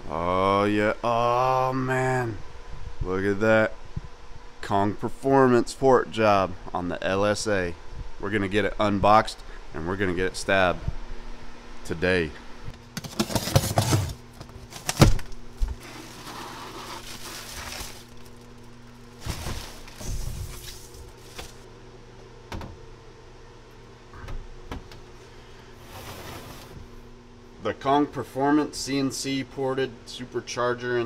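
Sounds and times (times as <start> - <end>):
steady low hum: 0.0 - 31.0
cardboard and plastic rustling: 12.9 - 21.7
packing tape tearing: 13.0 - 21.6.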